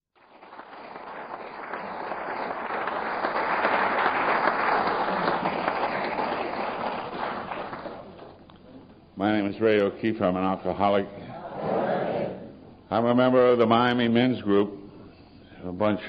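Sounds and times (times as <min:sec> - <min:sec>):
audience applauding: 0:00.2 - 0:08.4.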